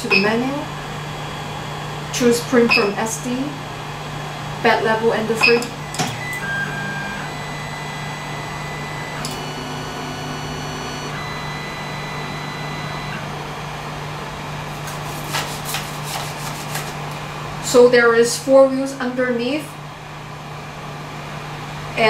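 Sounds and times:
cooling fans humming: 0.0s - 22.0s
stepper motors whining: 5.2s - 13.4s.

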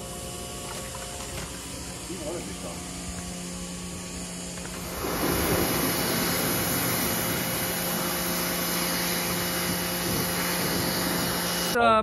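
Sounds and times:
steady hum: 0.0s - 12.0s
pressure washer spraying rock: 4.6s - 12.0s.

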